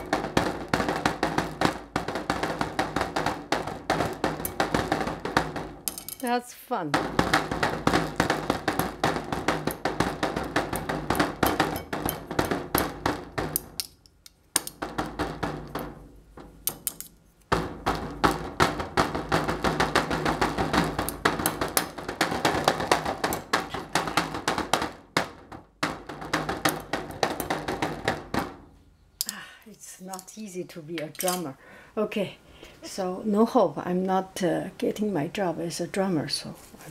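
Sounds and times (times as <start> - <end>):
plastic spoons tapping on covered bowl: 0.0 - 29.4.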